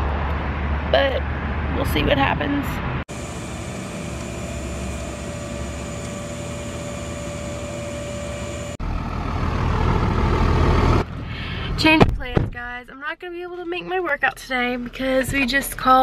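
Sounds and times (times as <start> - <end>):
winch whine: 3.1 - 11.2
truck engine running: 3.1 - 11.6
deep diesel engine rumble: 3.1 - 11.8.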